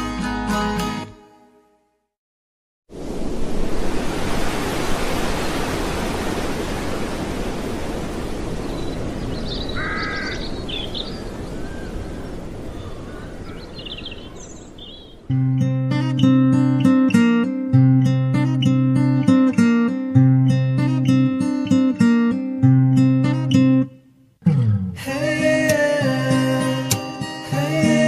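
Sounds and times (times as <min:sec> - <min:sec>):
steady rushing noise: 0:02.9 - 0:09.4
high bird chirps: 0:08.6 - 0:15.4
bird harsh call: 0:08.7 - 0:15.4.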